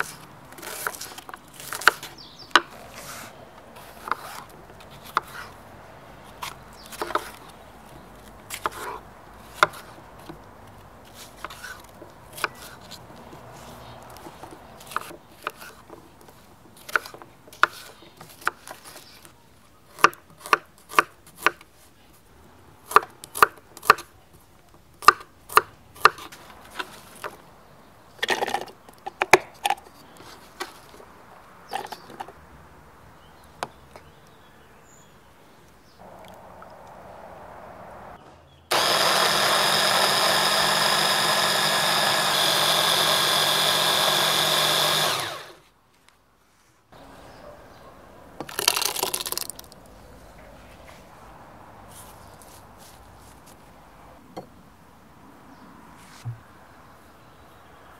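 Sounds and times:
electric mini chopper running: 38.7 - 45.6.

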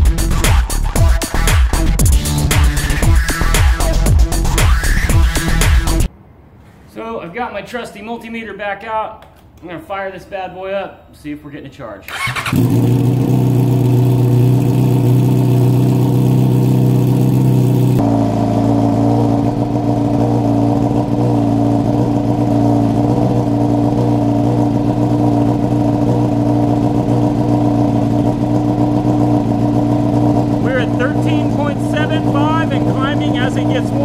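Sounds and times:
motorcycle engine idling: 12.1 - 34.0.

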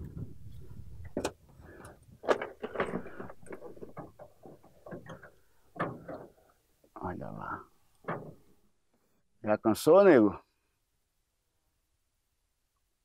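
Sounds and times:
irregular clicks and knocks: 0.0 - 7.0, 7.9 - 9.0.

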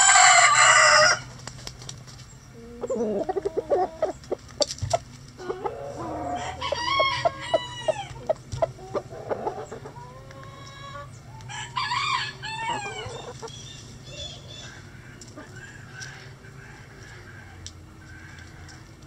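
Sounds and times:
rooster crowing: 0.0 - 1.3, 5.4 - 8.2, 10.8 - 13.3
chickens clucking: 0.0 - 19.0.

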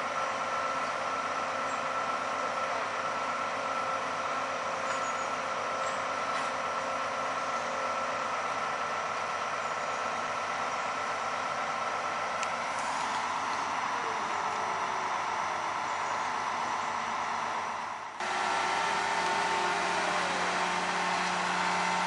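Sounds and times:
heavy machinery drone: 11.7 - 22.0
high machine whine: 12.8 - 22.0.

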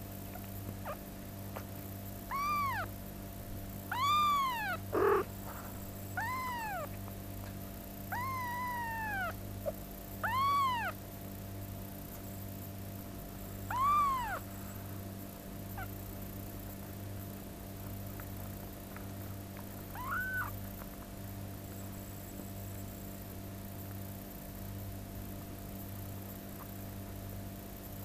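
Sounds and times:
kittens mewing: 0.8 - 3.0, 3.9 - 7.0, 8.1 - 11.0, 13.6 - 14.5, 19.9 - 20.6.

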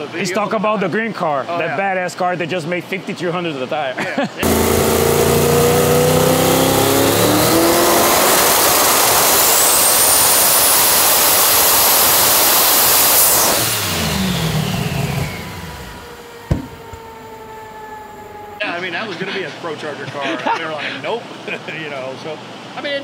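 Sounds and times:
drag car engine roaring: 4.4 - 18.7
high engine whine: 4.4 - 19.5.

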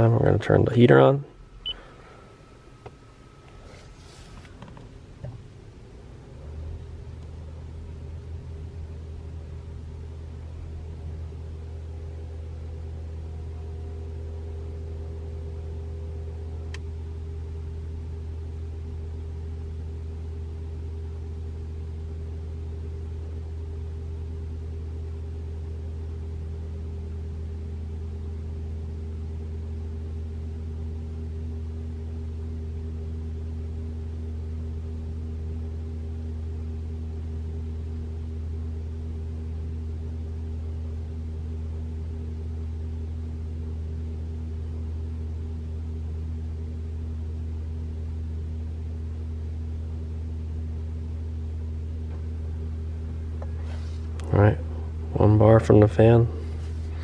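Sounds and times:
electric compressor humming: 0.0 - 57.0
faint buzz of steady tones: 0.6 - 3.7.

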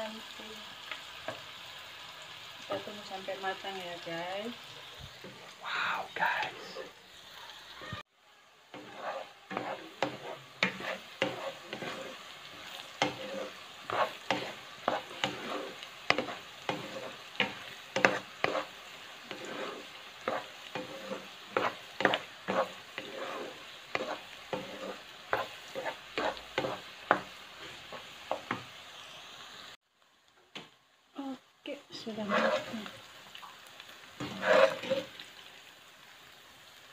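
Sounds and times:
food sizzling in hot oil: 0.0 - 36.9
spatula scraping a pan: 6.1 - 7.0, 8.7 - 29.2, 32.1 - 33.0, 34.1 - 35.3.

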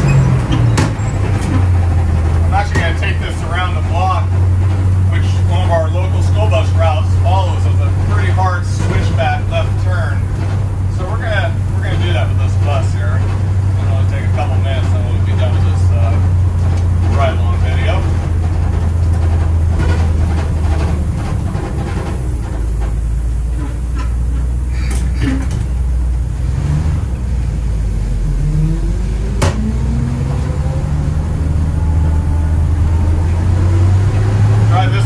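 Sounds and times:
bus engine running: 0.0 - 35.0
body rattle: 8.6 - 26.0.

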